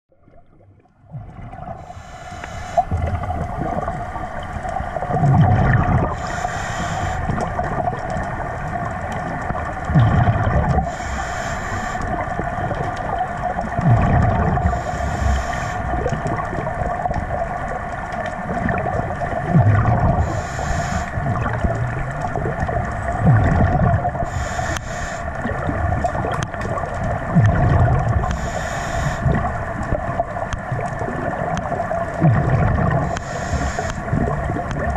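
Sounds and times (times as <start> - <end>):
underwater exhaled bubbles: 0.1 - 34.9
underwater breathing hiss: 1.8 - 3.2, 6.0 - 7.4, 10.2 - 12.4, 14.6 - 16.0, 20.0 - 21.5, 24.1 - 25.4, 28.2 - 29.6, 32.9 - 34.2.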